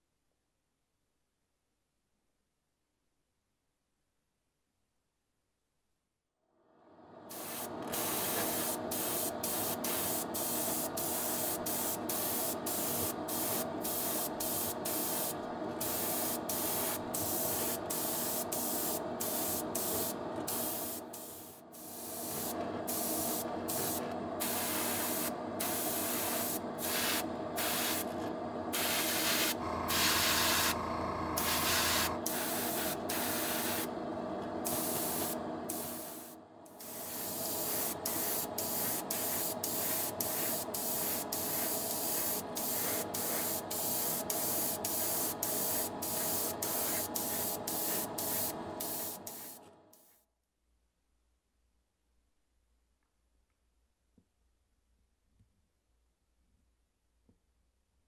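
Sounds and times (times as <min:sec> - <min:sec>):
steady hum: 0:07.2 - 0:49.5
airbrush spraying hiss: 0:07.3 - 0:28.1, 0:28.8 - 0:30.8, 0:31.4 - 0:33.9, 0:34.6 - 0:50.1
deeper hum: 0:29.6 - 0:32.2.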